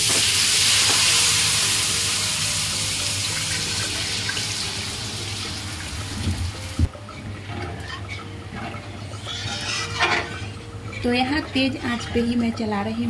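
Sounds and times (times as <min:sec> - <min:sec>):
batter sizzling in hot oil: 0:00.0 - 0:06.7.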